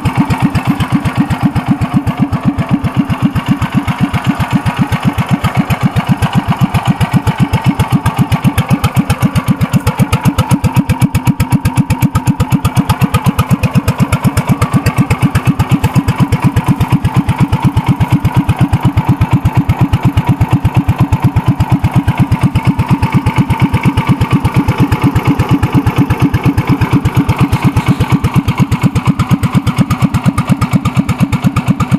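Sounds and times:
three-wheeler engine idling: 0:00.0 - 0:31.9.

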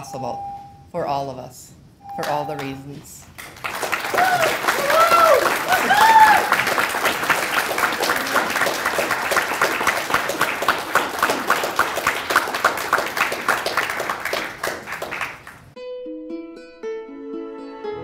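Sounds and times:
audience applauding: 0:03.3 - 0:15.8
soft plucked-string music: 0:15.8 - 0:18.0.

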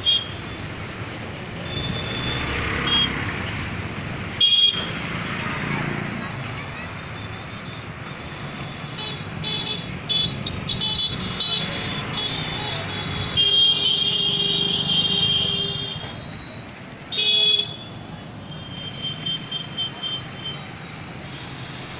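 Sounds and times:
vehicle horns honking: 0:00.0 - 0:00.6, 0:04.4 - 0:05.0, 0:08.9 - 0:16.2, 0:17.1 - 0:20.6
road traffic rumbling: 0:00.0 - 0:21.9.

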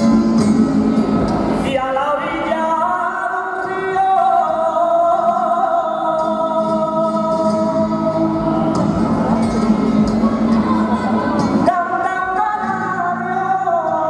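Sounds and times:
flamenco guitar: 0:00.0 - 0:14.0
man singing flamenco: 0:01.6 - 0:14.0.

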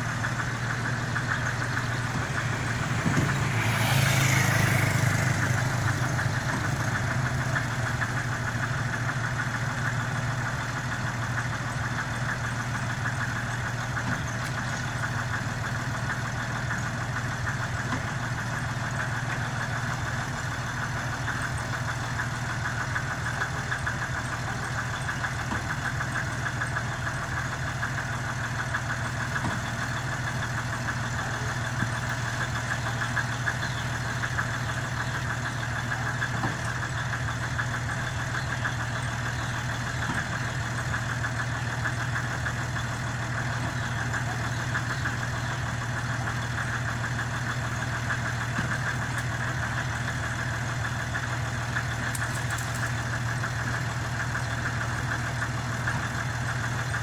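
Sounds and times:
truck engine running at low revs: 0:00.0 - 0:57.0.

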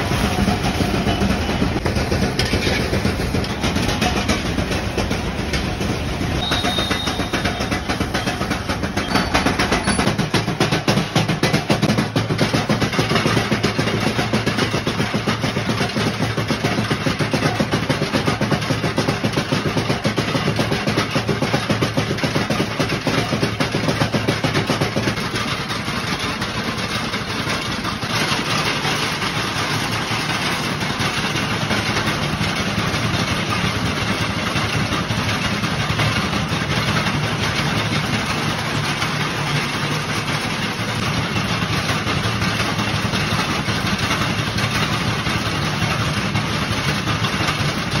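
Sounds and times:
iron pestles thudding: 0:00.0 - 0:11.8.

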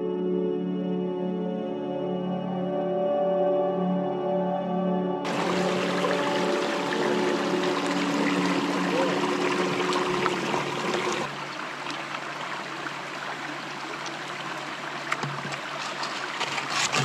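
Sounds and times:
background music: 0:00.0 - 0:09.6
stream running among rocks: 0:05.3 - 0:17.0.

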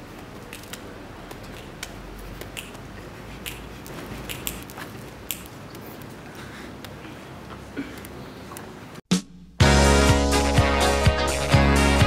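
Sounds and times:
steady low hiss: 0:00.0 - 0:09.0
sharp clicks and snaps: 0:00.4 - 0:06.1.

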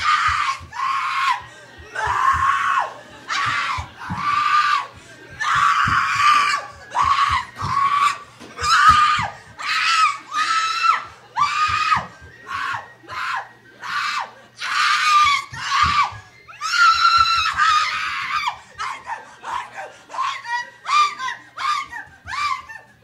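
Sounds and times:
woman screaming: 0:00.0 - 0:01.4, 0:02.0 - 0:22.9.

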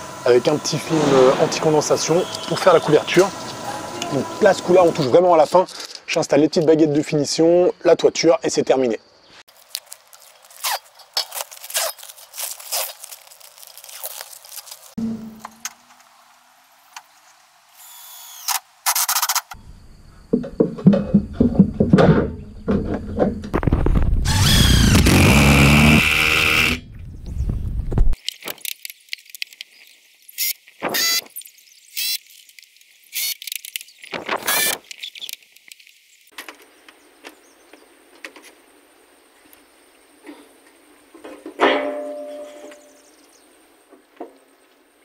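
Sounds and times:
power drill-driver running: 0:17.8 - 0:19.4, 0:24.3 - 0:26.8, 0:32.0 - 0:32.2.

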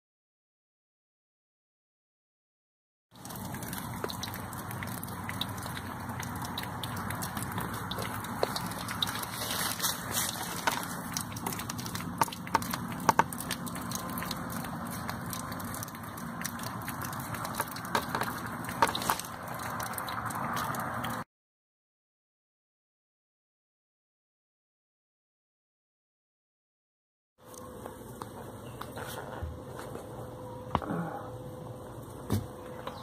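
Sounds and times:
water rushing and spraying: 0:03.2 - 0:21.2.

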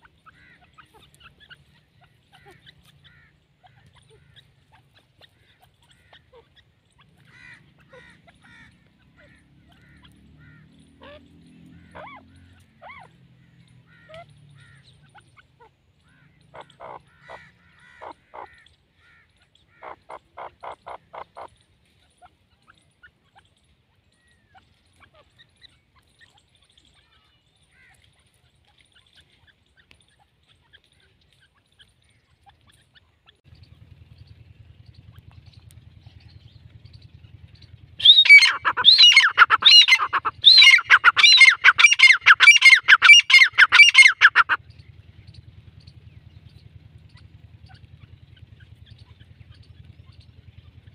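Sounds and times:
low hum: 0:30.9 - 0:50.9
francolin calling: 0:34.8 - 0:46.0.

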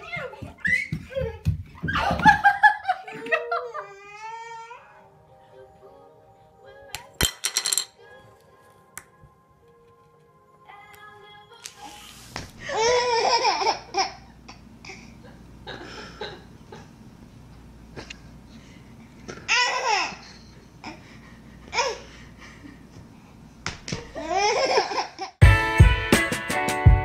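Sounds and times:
baby laughing: 0:12.6 - 0:15.0, 0:24.0 - 0:25.4.

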